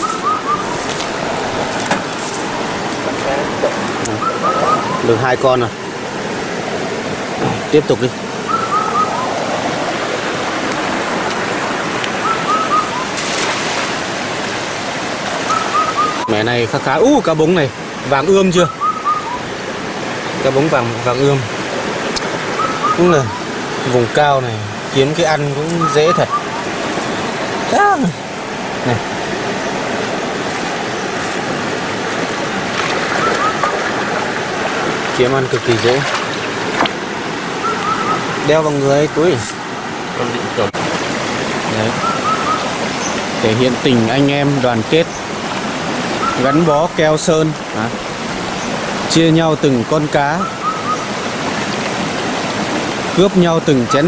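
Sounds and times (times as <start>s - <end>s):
stream rushing over rocks: 0.0s - 54.0s
faint voice: 27.7s - 28.2s.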